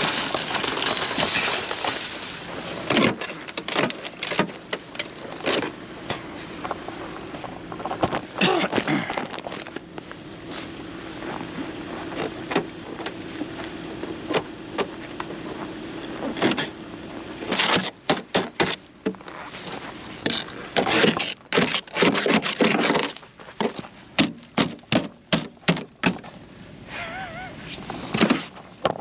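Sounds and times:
knocks and rustles: 0:00.0 - 0:10.1, 0:27.8 - 0:29.0
brush scraping snow off car: 0:15.3 - 0:24.0, 0:27.6 - 0:28.8.

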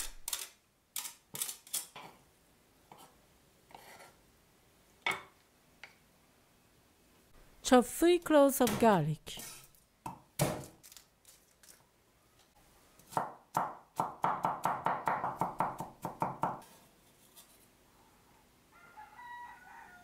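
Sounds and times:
cleaver chopping on wooden board: 0:13.1 - 0:16.6.

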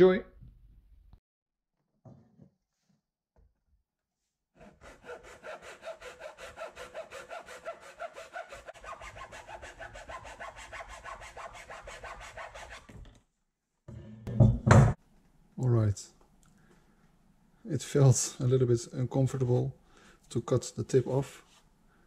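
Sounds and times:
hacksaw cutting wood: 0:04.6 - 0:12.8.

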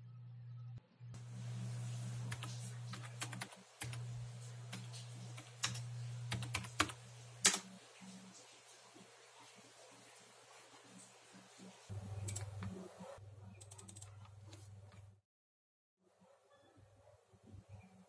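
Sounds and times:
low steady hum: 0:00.0 - 0:08.5
keyboard typing: 0:02.3 - 0:07.7, 0:12.2 - 0:12.8, 0:13.5 - 0:14.4.

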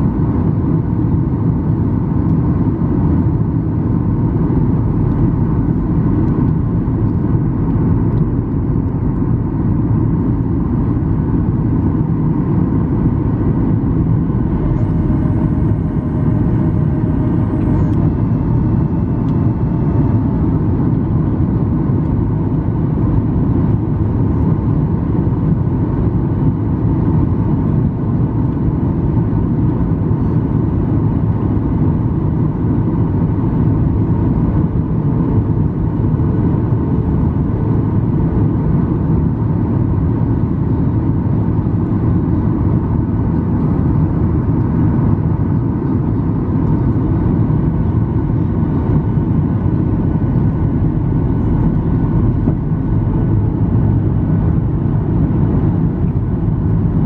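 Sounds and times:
airplane cabin rumble: 0:00.0 - 0:57.0
faint steady whining tones: 0:01.0 - 0:24.8, 0:39.2 - 0:57.0.

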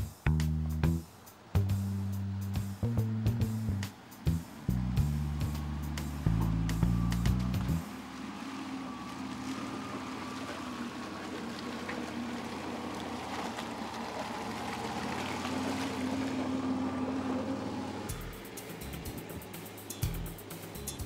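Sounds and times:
background music: 0:00.0 - 0:07.9, 0:18.0 - 0:21.0
car engine driving through mud: 0:01.6 - 0:20.2.

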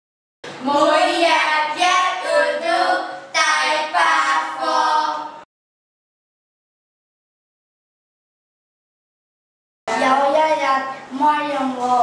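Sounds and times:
woman and children singing: 0:00.6 - 0:05.4.

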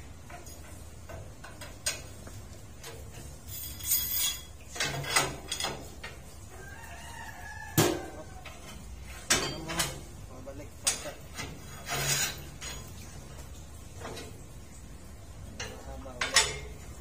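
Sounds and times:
metal clanks: 0:00.2 - 0:06.2, 0:07.8 - 0:10.1
metal scrape: 0:03.4 - 0:05.7, 0:11.4 - 0:12.9.

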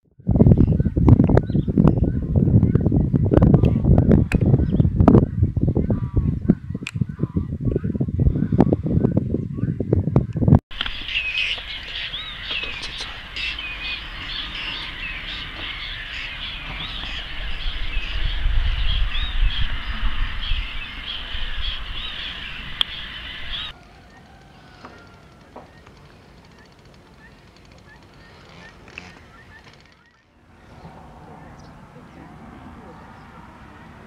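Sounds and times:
waterbirds calling in a flock: 0:10.8 - 0:31.8.

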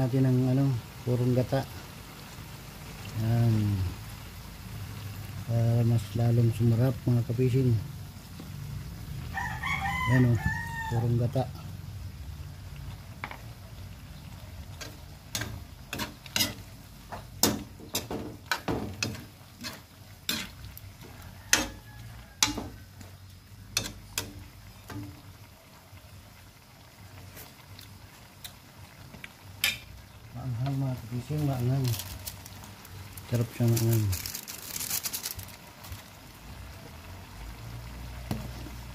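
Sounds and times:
utensil scraping a metal wok: 0:14.3 - 0:25.2.

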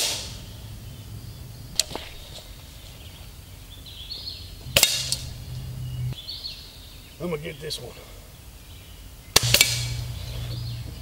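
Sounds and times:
air rifle firing: 0:04.7 - 0:05.4, 0:09.4 - 0:10.2
sharp click: 0:09.4 - 0:10.0.

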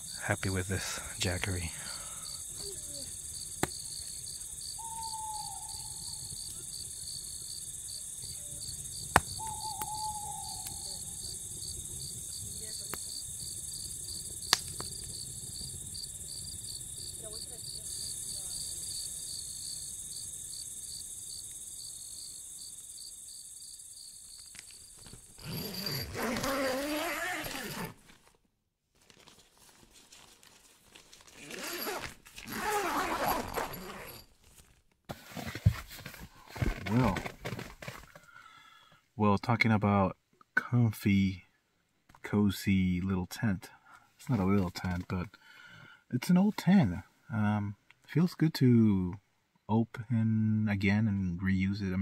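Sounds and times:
crickets chirping: 0:00.0 - 0:27.9, 0:31.6 - 0:34.2
campfire pops: 0:03.4 - 0:04.0, 0:09.0 - 0:10.8, 0:12.3 - 0:13.2, 0:14.1 - 0:15.9.

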